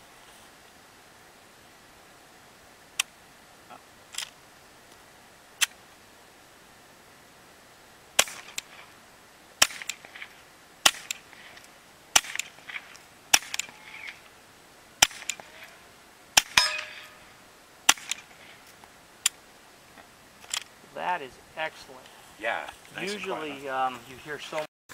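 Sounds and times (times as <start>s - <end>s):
suppressed pistol shots: 8.2s - 8.8s, 9.6s - 11.3s, 12.1s - 13.8s, 15.0s - 15.5s, 16.4s - 17.2s, 17.9s - 18.3s.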